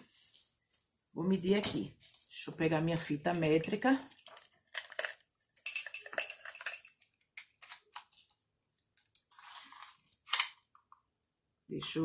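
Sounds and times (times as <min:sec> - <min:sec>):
small clinks and taps: 0:03.3 - 0:07.5.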